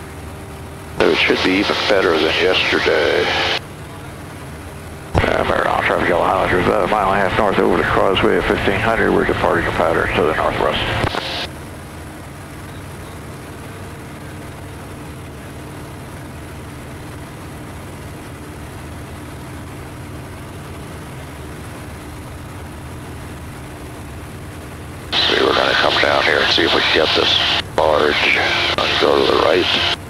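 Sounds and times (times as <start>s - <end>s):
light plane engine droning: 0.0s - 30.0s.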